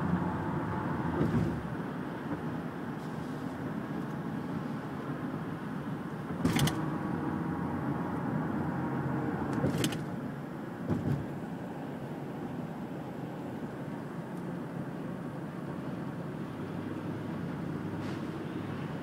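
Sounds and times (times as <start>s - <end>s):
road and wind noise in car: 0.0s - 19.0s
dull thump: 10.8s - 11.4s.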